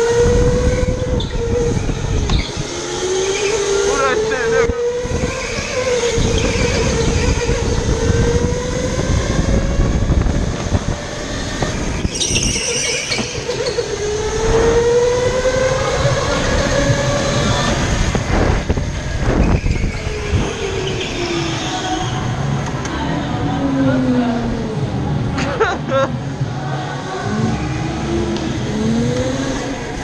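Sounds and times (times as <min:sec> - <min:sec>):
wind noise on microphone: 0:00.0 - 0:25.4
wheels rumbling: 0:00.0 - 0:30.0
tyres squealing: 0:12.0 - 0:14.0.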